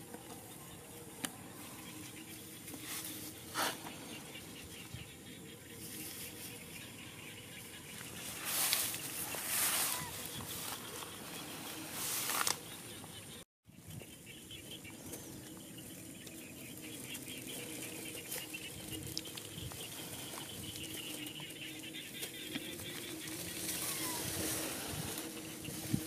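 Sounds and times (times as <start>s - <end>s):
soft outdoor background: 0.0s - 26.0s
rice plants rustling: 8.0s - 12.8s.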